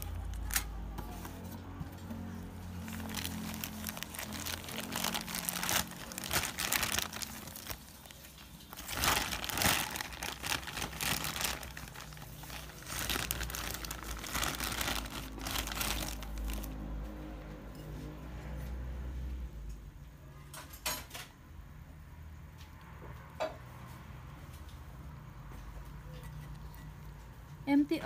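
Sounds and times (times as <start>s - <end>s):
plastic bag crinkling: 2.6s - 17.0s.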